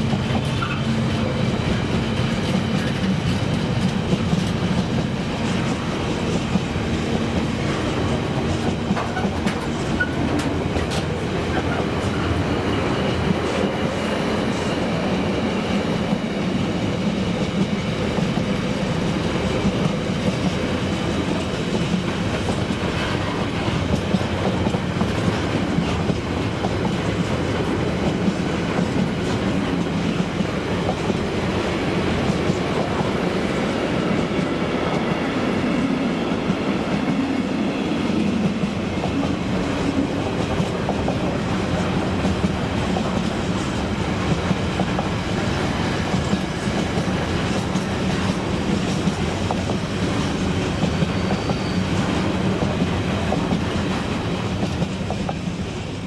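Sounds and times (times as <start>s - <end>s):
freight train wheels rumbling: 0.0s - 56.0s
wheels clacking over rail joints: 1.6s - 12.3s.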